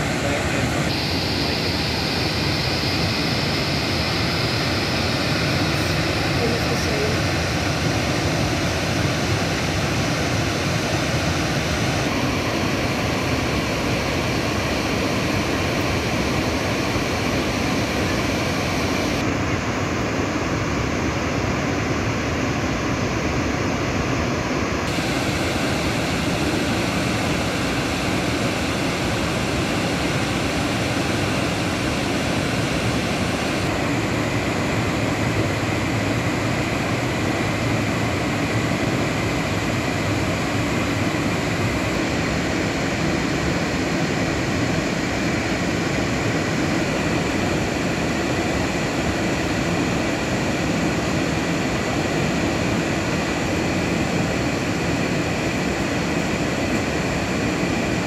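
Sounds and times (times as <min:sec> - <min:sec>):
waterfall rushing: 0:24.9 - 0:33.7.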